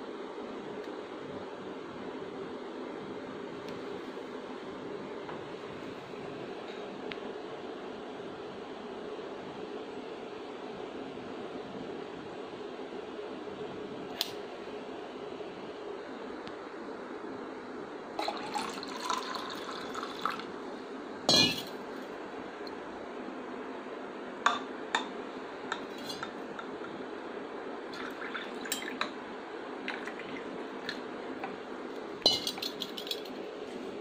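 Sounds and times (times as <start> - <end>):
steady background hum: 0.0 - 34.0
milk pouring into plastic cup: 18.2 - 20.5
glass clinking against cup: 21.3 - 21.7, 28.6 - 29.1, 32.2 - 33.3.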